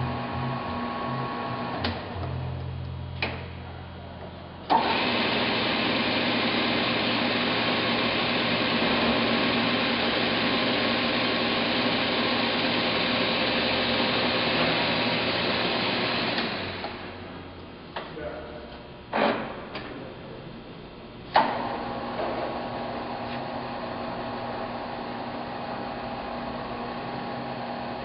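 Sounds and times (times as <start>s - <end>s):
lathe spindle whining: 4.7s - 17.2s.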